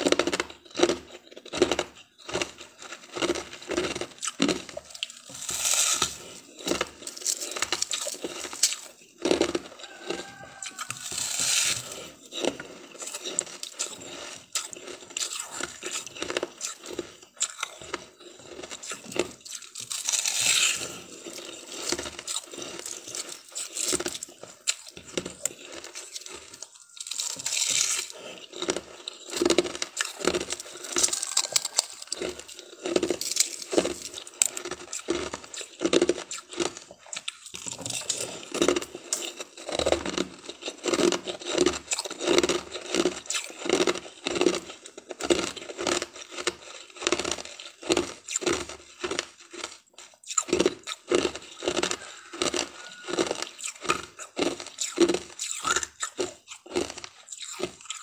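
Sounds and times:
rhythmic chewing: 0:00.0 - 0:58.0
ice being crunched: 0:02.5 - 0:36.8.

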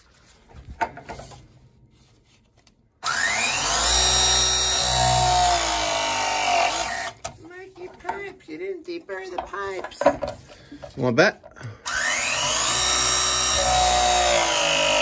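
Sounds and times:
press tool motor whine: 0:03.0 - 0:07.2, 0:11.9 - 0:15.0.

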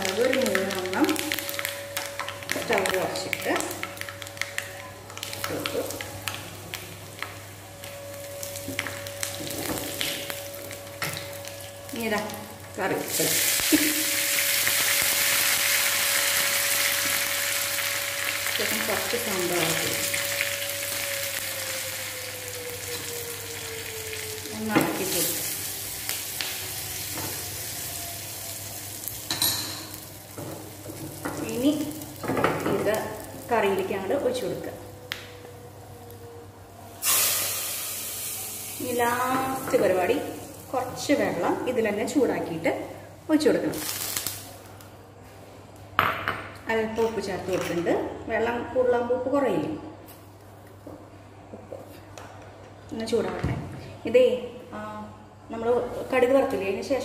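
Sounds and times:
seeds crackling and popping: 0:00.0 - 0:21.8, 0:43.7 - 0:44.9
spices sizzling in hot oil: 0:00.0 - 0:34.9, 0:37.0 - 0:42.7, 0:43.6 - 0:44.7.

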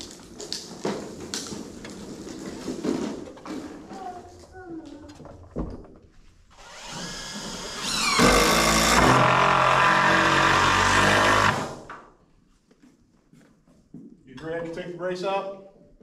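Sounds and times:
impact driver hammering: 0:07.8 - 0:11.9.

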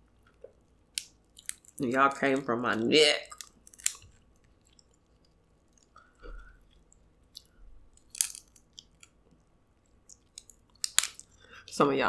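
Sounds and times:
crab shell crackle: 0:00.2 - 0:09.2, 0:09.9 - 0:11.4
chewing with wet mouth clicks: 0:03.2 - 0:06.0, 0:10.0 - 0:11.3.

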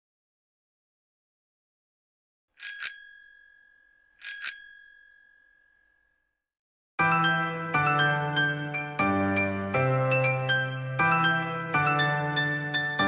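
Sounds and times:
bicycle bell ringing: 0:02.6 - 0:06.1
keyboard music with held chords: 0:07.0 - 0:13.0.

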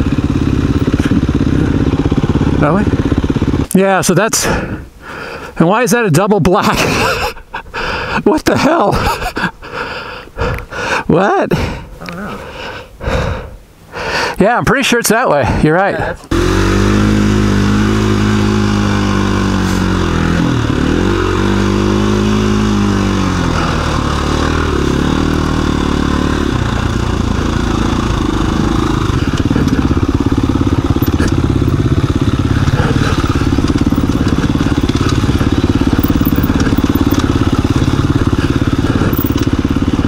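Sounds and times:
dirt bike engine revving: 0:00.0 - 0:03.7, 0:16.3 - 0:40.0.

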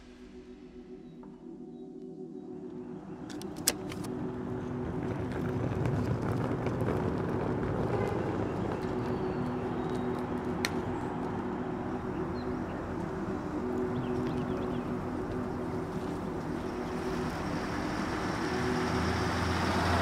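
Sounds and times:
vehicle engine humming: 0:02.8 - 0:20.0
broad rumble: 0:04.2 - 0:20.0.

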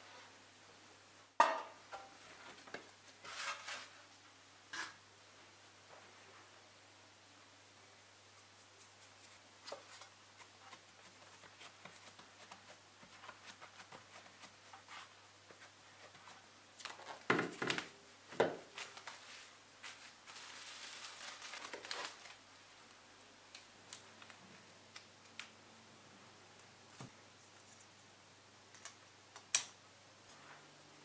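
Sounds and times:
crinkling: 0:08.6 - 0:25.6.

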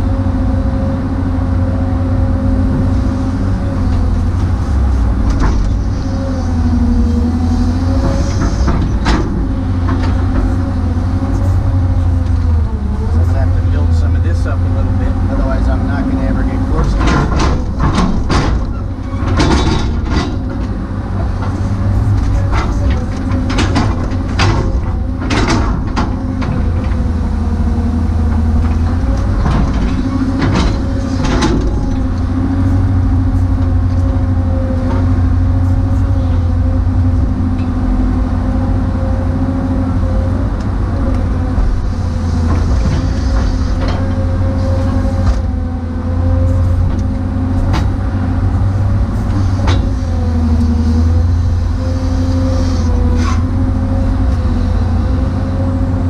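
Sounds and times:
excavator engine drone: 0:00.0 - 0:56.0
hydraulic whine: 0:01.8 - 0:56.0
machine clanks and knocks: 0:05.2 - 0:05.9, 0:07.9 - 0:11.5, 0:15.5 - 0:32.6, 0:42.4 - 0:45.6, 0:46.5 - 0:48.1, 0:49.2 - 0:50.0.

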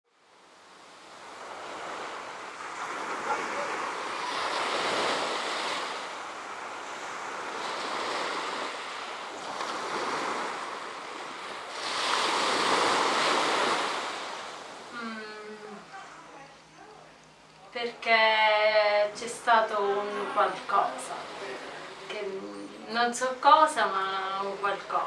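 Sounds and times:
sea waves washing on beach: 0:00.1 - 0:15.0, 0:18.2 - 0:22.6.

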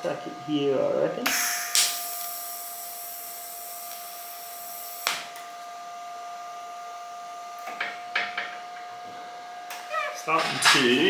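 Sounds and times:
welder humming: 0:00.0 - 0:11.0
welding arc hissing: 0:01.3 - 0:05.6.

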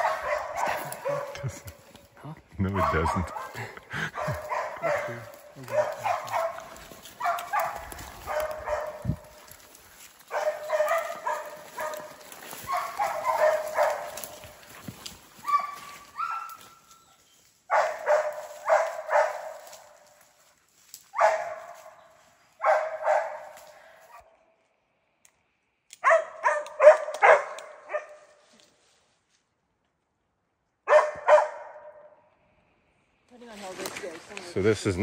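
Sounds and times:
hunting dogs barking: 0:00.0 - 0:01.8, 0:02.6 - 0:17.0, 0:17.7 - 0:20.3, 0:21.0 - 0:24.4, 0:26.0 - 0:28.4, 0:30.8 - 0:32.3.

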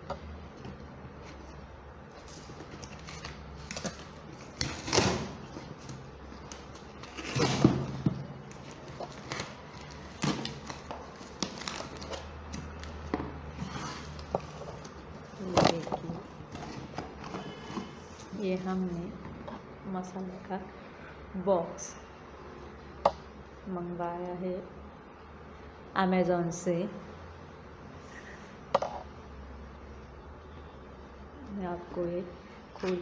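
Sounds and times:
tape tearing off cardboard: 0:02.2 - 0:08.0.

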